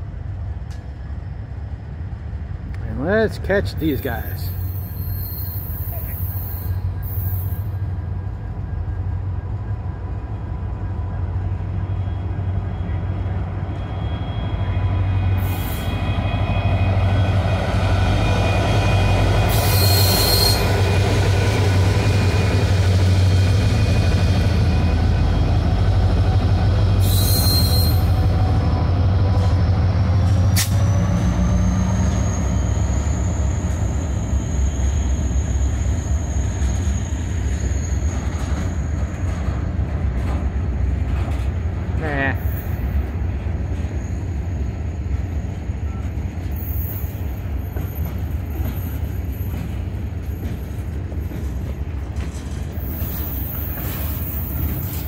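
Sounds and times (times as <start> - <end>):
diesel locomotive engine drone: 0.0 - 55.0
high wheel squeal: 3.8 - 7.9, 11.9 - 21.0, 26.9 - 28.4, 30.8 - 39.3, 52.7 - 55.0.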